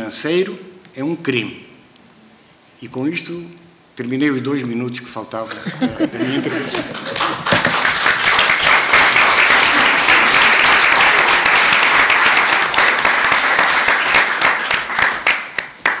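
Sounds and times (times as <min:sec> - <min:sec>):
audience applauding: 0:05.8 - 0:16.0.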